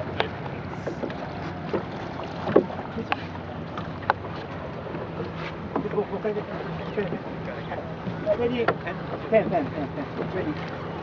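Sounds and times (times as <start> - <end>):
water noise: 0.0 - 11.0
knocks on boat: 0.1 - 5.9, 8.0 - 10.7.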